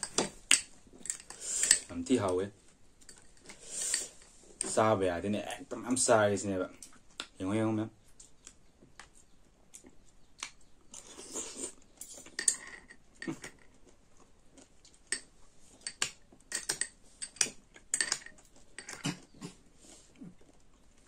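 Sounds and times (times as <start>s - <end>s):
chewing: 8.1s - 15.6s, 16.3s - 21.0s
cutlery clinking against glass bowl: 12.3s - 13.6s, 15.8s - 19.1s.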